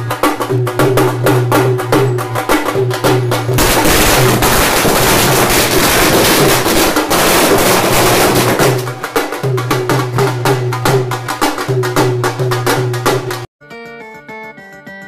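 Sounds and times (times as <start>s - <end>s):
firecrackers crackling and banging: 0.3s - 11.8s
music playing: 8.2s - 15.0s.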